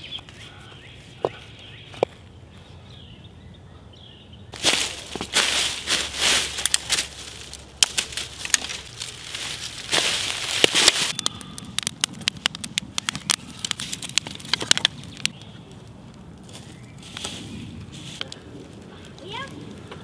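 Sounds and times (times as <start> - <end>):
wood fire crackling and popping: 0.0 - 2.8, 4.5 - 20.0
dry leaves and twigs rustling: 4.5 - 20.0.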